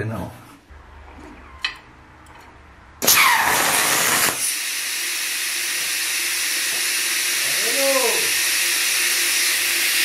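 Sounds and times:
plasma cutter blast and hiss: 3.0 - 5.0.

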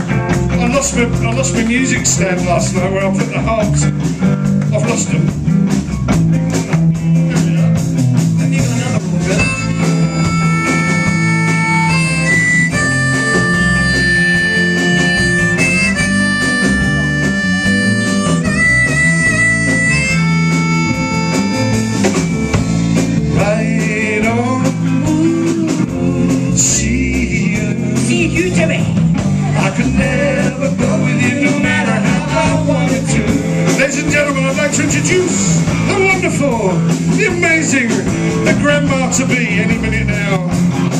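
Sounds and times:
electric band playing: 0.0 - 40.9
blues harmonica solo: 7.0 - 23.4.

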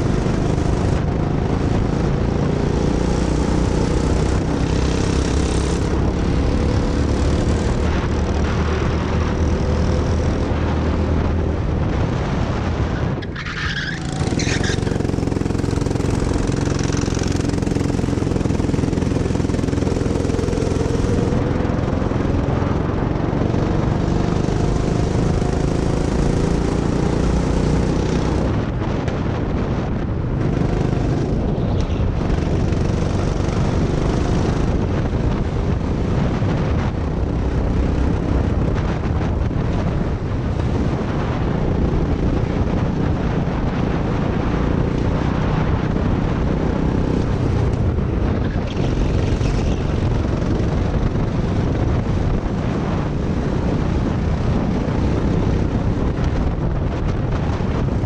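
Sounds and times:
go-kart engine running: 0.0 - 12.1, 13.5 - 28.4, 30.1 - 36.3, 45.7 - 56.7.

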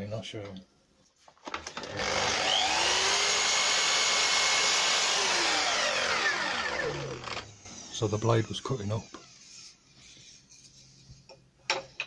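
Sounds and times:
mitre saw motor running: 1.8 - 7.6
saw blade cutting wood: 1.9 - 7.5.

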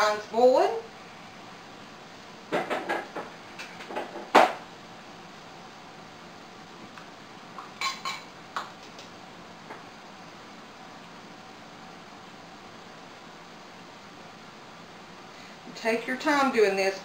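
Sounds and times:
utensils clinking against pots and jars: 7.8 - 8.3.

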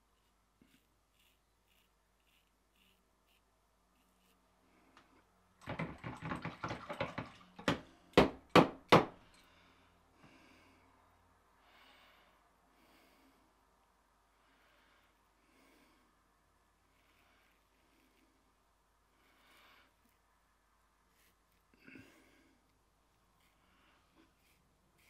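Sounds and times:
razor scraping stubble: 0.1 - 4.4, 23.2 - 25.0
razor knocking: 5.6 - 9.2.

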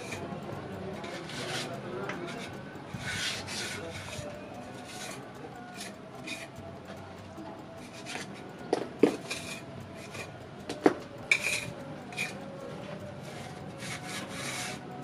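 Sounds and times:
metal clicks on surface: 0.0 - 15.0
metal tool scraping cement: 3.1 - 4.1, 11.3 - 12.3.

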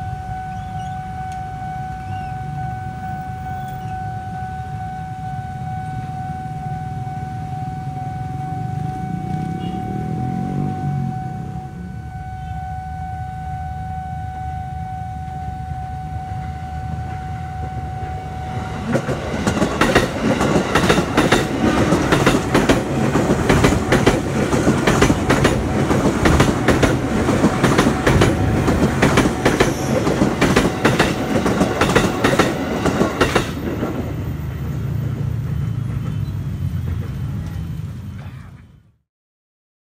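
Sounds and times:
steady tone: 0.0 - 35.6
train wheels clacking over rail joints: 18.8 - 34.2.

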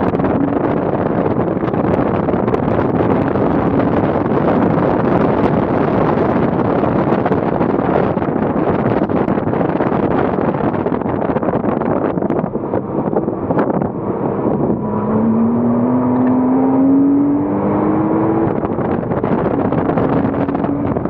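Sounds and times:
car engine accelerating: 0.0 - 21.0
rushing wind noise: 0.0 - 21.0.

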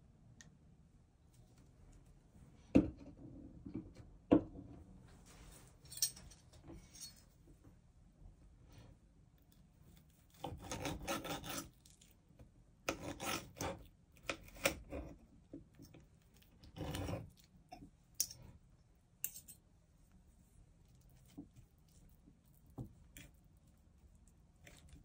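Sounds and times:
knife sawing through meat: 10.4 - 11.7, 12.9 - 13.8.

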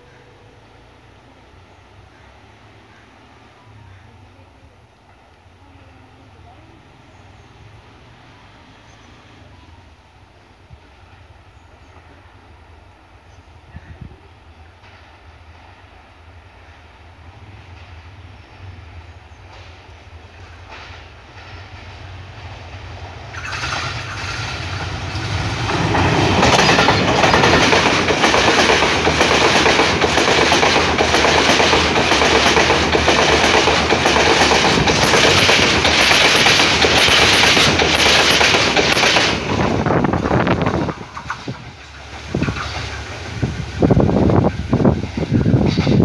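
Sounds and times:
diesel locomotive engine rumble: 0.0 - 46.0
train carriages rushing past: 0.0 - 46.0
wheels clacking over rail joints: 20.6 - 46.0.

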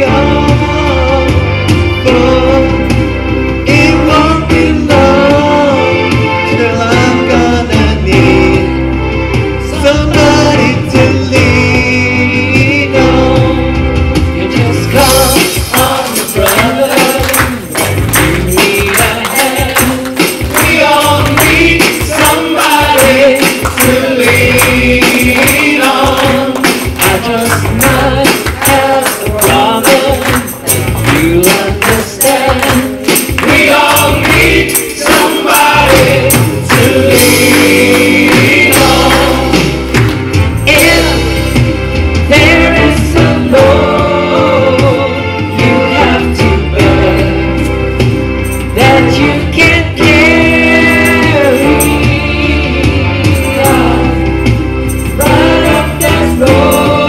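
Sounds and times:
tambourine beat: 12.8 - 57.0
choir singing: 14.8 - 40.0, 40.6 - 47.7, 48.8 - 57.0.

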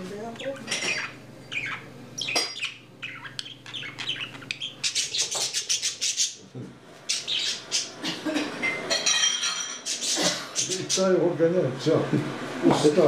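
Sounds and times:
budgerigar chirping: 0.4 - 6.4, 7.1 - 8.0.

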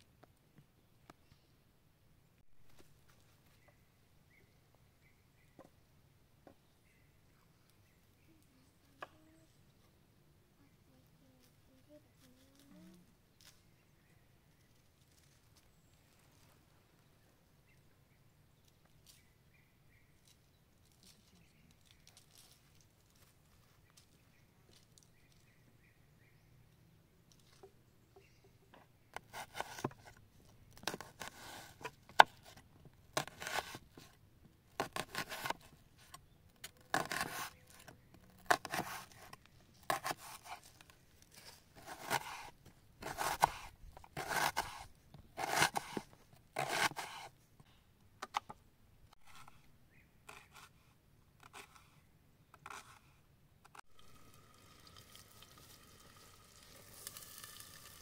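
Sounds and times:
knife slicing onion on board: 33.2 - 33.8, 34.8 - 35.5, 36.9 - 37.5, 41.8 - 44.8, 45.4 - 46.0, 46.6 - 47.3.

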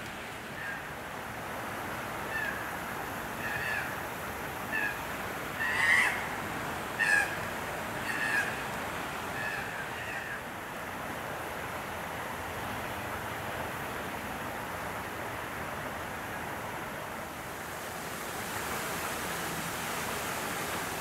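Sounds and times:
steady hiss: 10.7 - 21.0.

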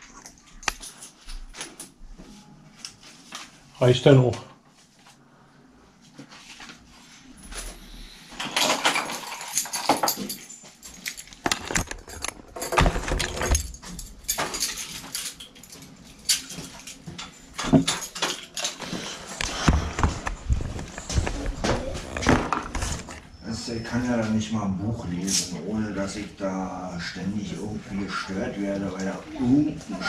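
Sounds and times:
hard objects clattering and knocking: 8.4 - 23.3.

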